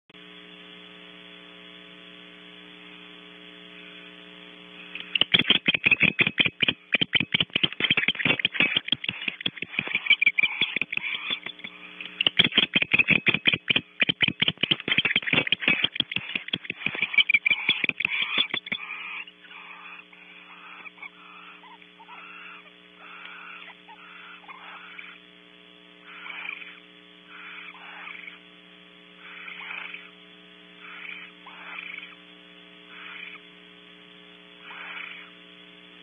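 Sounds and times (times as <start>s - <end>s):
steady electrical hum: 0.2s - 36.0s
owls chittering calls: 5.0s - 25.3s, 26.0s - 28.4s, 29.2s - 30.2s, 30.8s - 32.2s, 32.9s - 33.5s, 34.6s - 35.4s.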